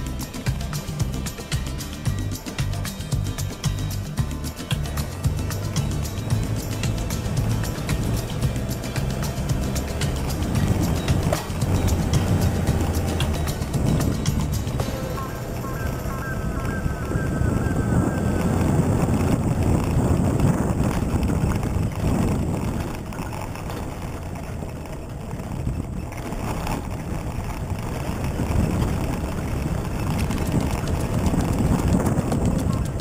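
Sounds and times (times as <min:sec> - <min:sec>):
vehicle engine and tyre rumble: 0:00.0 - 0:33.0.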